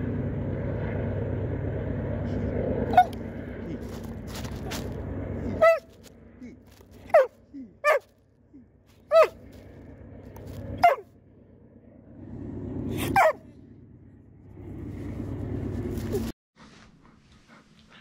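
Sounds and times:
dog yelping: 2.9 - 3.2, 5.5 - 6.0, 7.0 - 8.1, 9.1 - 9.5, 10.8 - 11.1, 13.0 - 13.4.

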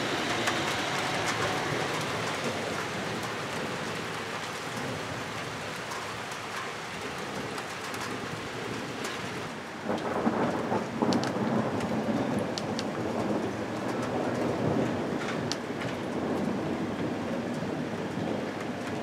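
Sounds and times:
heavy rain falling: 0.0 - 19.0
thunder rumbling: 9.8 - 19.0.

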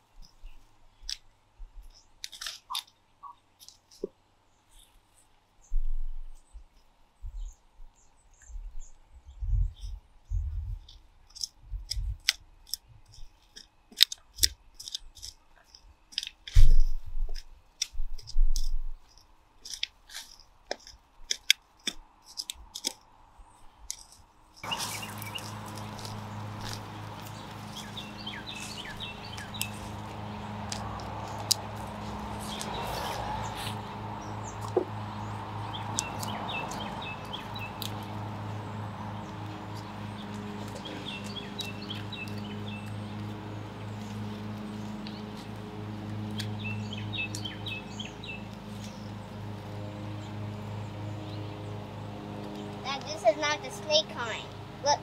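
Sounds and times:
birds chirping: 0.0 - 11.6, 12.5 - 55.0
trowel scraping through dry soil: 10.9 - 23.0, 23.9 - 34.8
steady low hum: 24.5 - 55.0.

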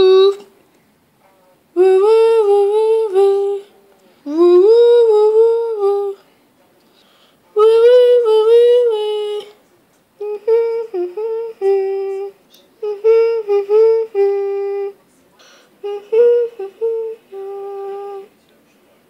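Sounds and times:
high voice humming a tune: 0.0 - 0.5, 1.8 - 6.2, 7.6 - 9.6, 10.2 - 15.0, 15.8 - 18.3.

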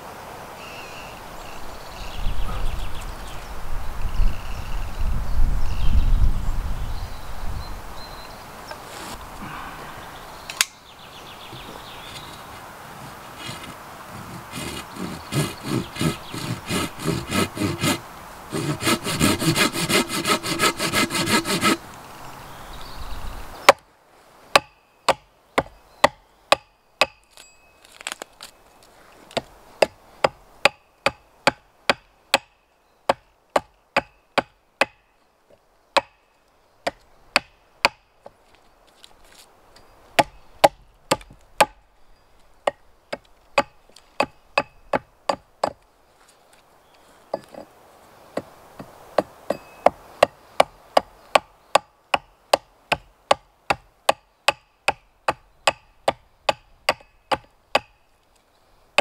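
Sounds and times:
pull saw cutting wood: 13.4 - 21.8
axe chopping wood: 49.2 - 57.9.

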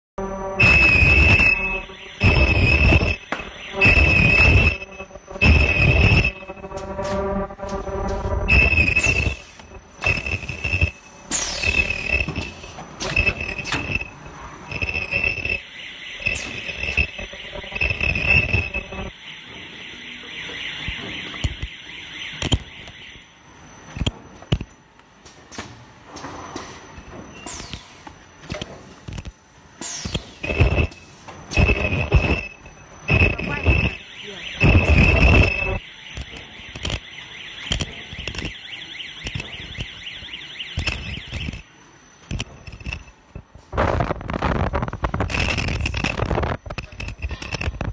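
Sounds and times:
electronic alarm buzzer beeping: 0.2 - 24.6, 30.4 - 43.3
machine clatter: 40.7 - 47.9.

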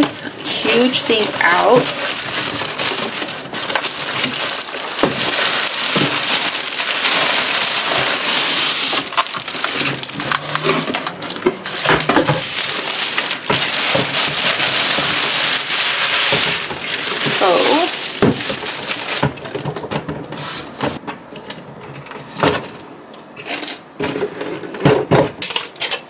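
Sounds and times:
plastic bag rustling: 0.0 - 21.0
cardboard and plastic knocks: 18.2 - 18.6.

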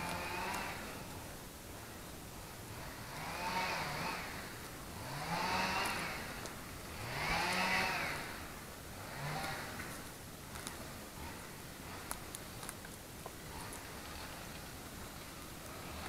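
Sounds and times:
small engine revving: 0.0 - 12.8, 13.4 - 16.0.

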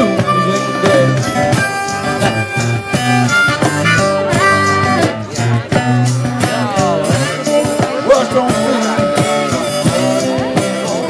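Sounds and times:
person singing: 0.0 - 1.8, 4.1 - 11.0
acoustic blues band: 0.0 - 11.0
acoustic guitar: 0.0 - 11.0
cajon beat: 0.0 - 11.0
harmonica bending notes: 0.0 - 11.0.

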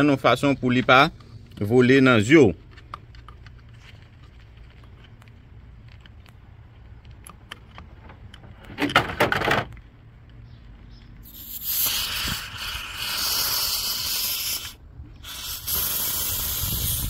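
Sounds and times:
refrigerant hissing from valve: 11.2 - 17.0.

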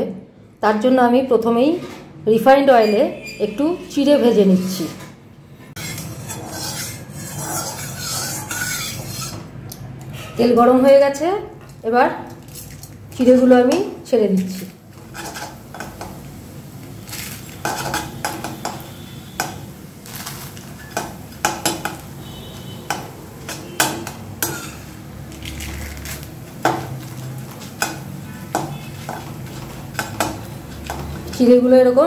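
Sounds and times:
metal spatula scraping a wok: 2.8 - 9.6, 14.5 - 16.2, 16.9 - 31.6
frying sizzle: 12.4 - 32.0.

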